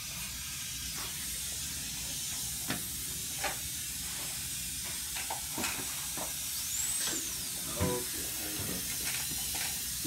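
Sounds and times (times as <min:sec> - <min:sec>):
dental handpiece hissing: 0:06.0 - 0:10.0.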